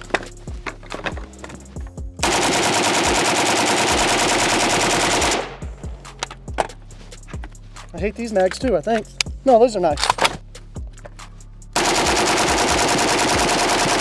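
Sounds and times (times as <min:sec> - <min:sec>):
metallic clicks of gun handling: 0:00.0 - 0:01.7, 0:06.1 - 0:07.6, 0:08.5 - 0:11.2
rifle full-auto burst: 0:02.2 - 0:05.6, 0:11.8 - 0:14.0.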